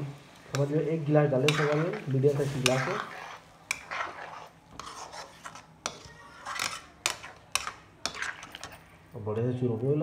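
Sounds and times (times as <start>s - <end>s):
spatula scraping metal pan: 0.5s - 8.9s
spatula clinking on pan: 5.8s - 8.9s.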